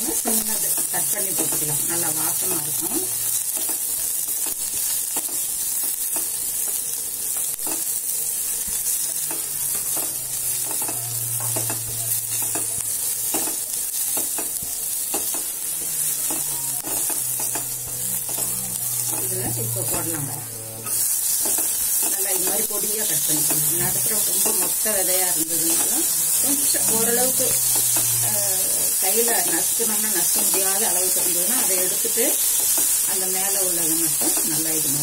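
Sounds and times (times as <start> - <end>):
onions sizzling in oil: 0.0 - 35.0
spatula scraping a pot: 8.9 - 31.4.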